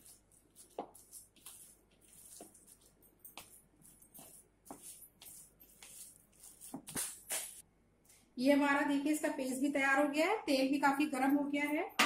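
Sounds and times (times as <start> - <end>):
hand squelching wet mixture: 0.0 - 7.6.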